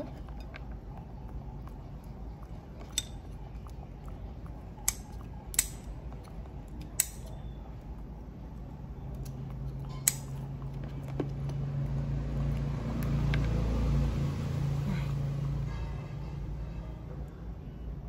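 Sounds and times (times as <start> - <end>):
low engine hum: 0.0 - 18.0
shells cracking and snapping: 4.8 - 7.4, 9.2 - 11.5.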